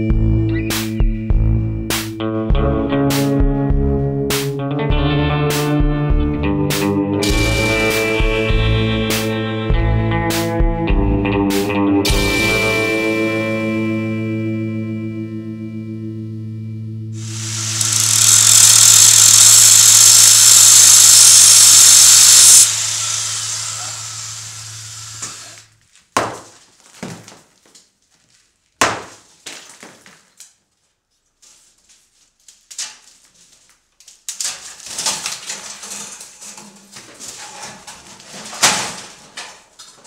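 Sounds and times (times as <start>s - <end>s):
loud distorted noise: 17.2s - 25.6s
boards clattering and scraping: 26.1s - 27.9s, 34.3s - 40.0s
wooden boards knocking and thudding: 26.2s - 27.6s, 28.8s - 30.2s.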